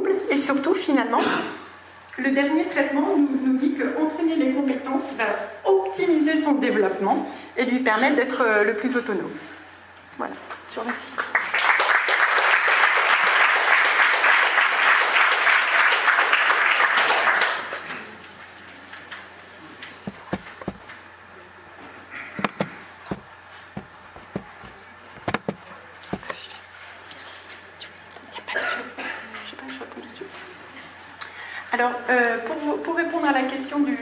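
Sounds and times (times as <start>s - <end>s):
audience applauding: 11.2s - 17.8s
small knocks and clicks: 22.4s - 26.4s.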